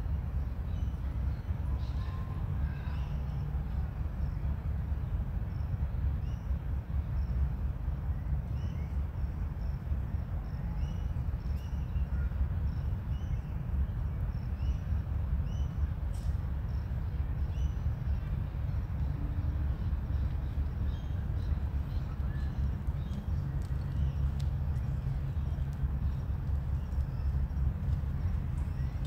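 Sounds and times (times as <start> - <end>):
steady low rumble: 0.0 - 29.0
faint clicks: 22.7 - 29.0.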